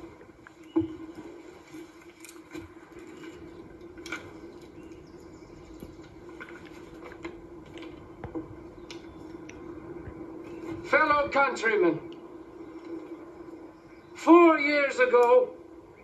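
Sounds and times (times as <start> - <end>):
small clicks and rustles: 0.1 - 10.8, 12.1 - 13.6.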